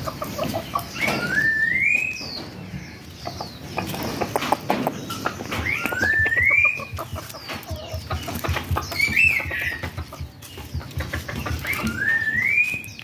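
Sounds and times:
knocks and rustling: 3.8 - 12.2.

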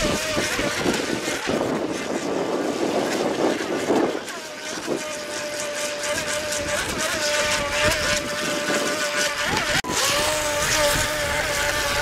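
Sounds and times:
model speedboat motor whining: 0.0 - 12.0.

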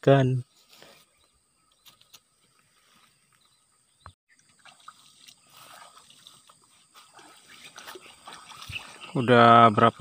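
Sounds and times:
water sloshing and trickling: 4.3 - 10.0.

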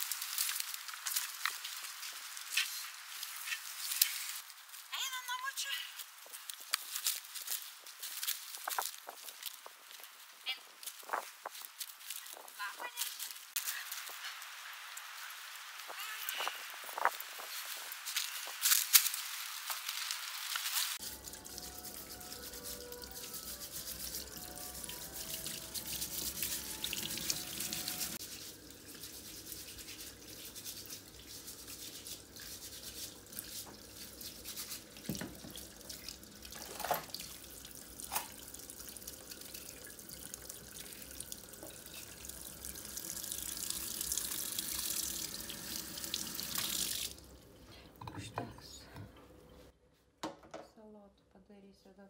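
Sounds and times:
vegetables scrubbed and scraped: 16.4 - 35.1.

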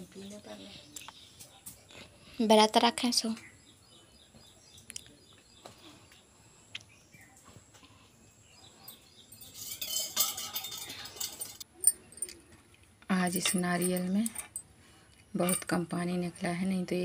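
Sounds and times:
faint bird chirps: 3.1 - 9.8
sharp metal clink: 9.4 - 12.4.

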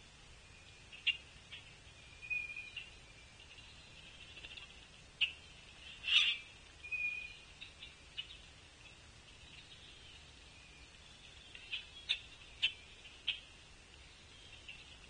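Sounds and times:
bird calls and clicks: 0.6 - 15.0
bird whistle: 6.1 - 7.4.

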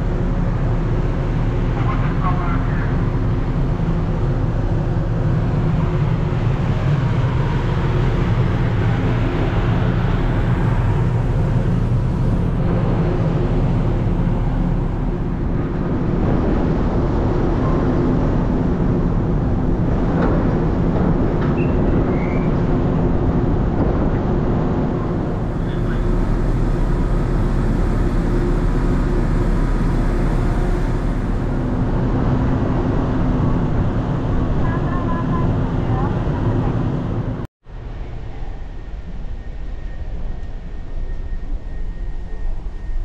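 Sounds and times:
ship machinery droning: 0.0 - 43.0.

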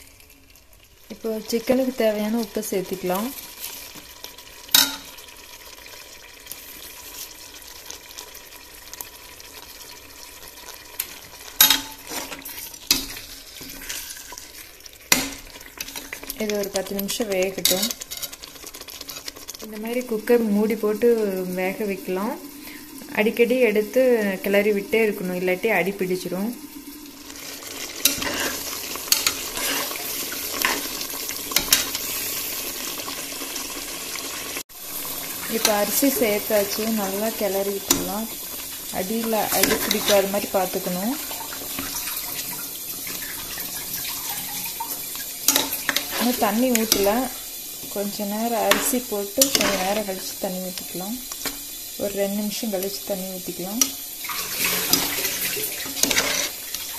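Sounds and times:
food sizzling in pot: 0.0 - 56.9
metal spoon scraping pot: 15.8 - 19.6, 28.0 - 30.9, 39.1 - 40.7, 45.5 - 47.2, 48.7 - 50.0, 54.6 - 56.9.

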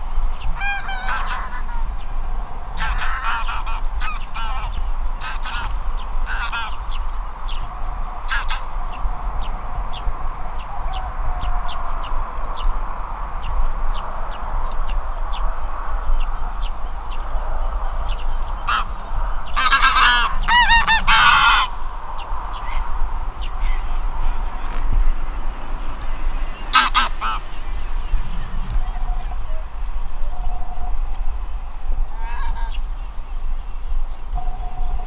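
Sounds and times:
geese honking in flight: 0.4 - 7.1, 8.1 - 9.2, 18.5 - 21.9, 22.5 - 31.0, 32.1 - 32.9.

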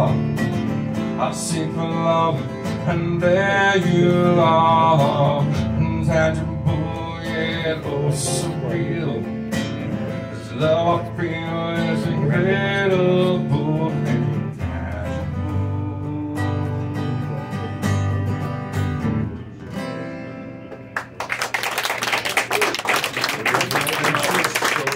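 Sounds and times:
man singing: 0.0 - 0.4, 1.0 - 18.4
strummed acoustic guitar: 0.0 - 21.2
audience applause: 21.0 - 24.9.

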